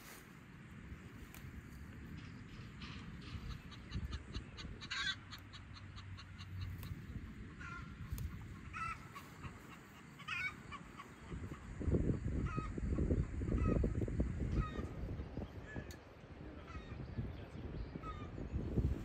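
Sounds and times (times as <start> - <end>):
fowl calling: 2.2 - 15.1, 16.6 - 17.1.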